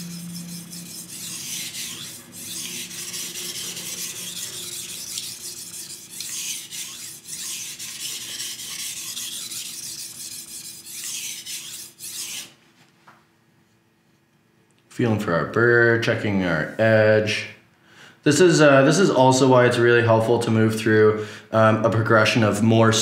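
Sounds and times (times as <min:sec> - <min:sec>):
knife scraping on whetstone: 0:00.0 - 0:12.6.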